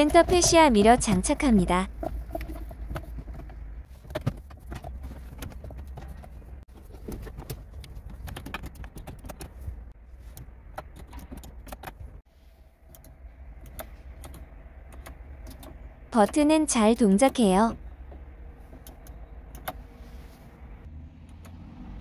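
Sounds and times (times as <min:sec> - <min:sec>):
dashboard switches clicking: 0:12.9 - 0:17.4.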